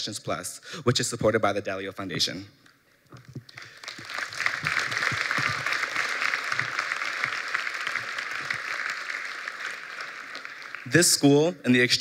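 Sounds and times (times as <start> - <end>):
audience applause: 3.5 - 11.5.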